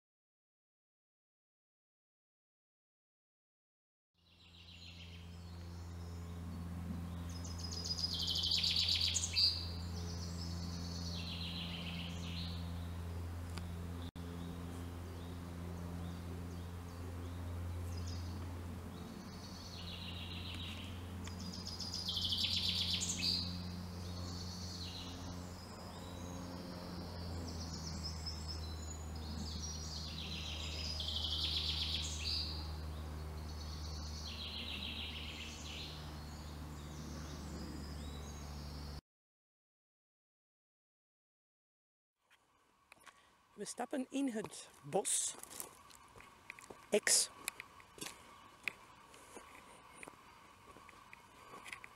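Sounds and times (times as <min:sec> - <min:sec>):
steady low hum: 0:04.3 - 0:39.0, 0:42.3 - 0:51.9
songbird trilling: 0:07.2 - 0:12.9, 0:19.2 - 0:38.3.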